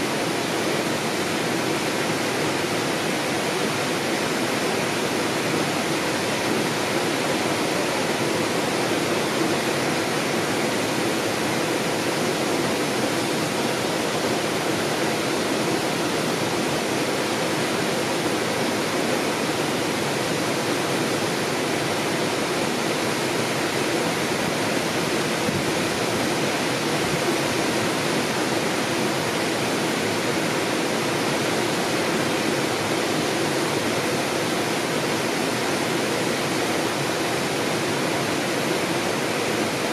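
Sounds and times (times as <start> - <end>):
flowing water rushing: 0.0 - 39.9.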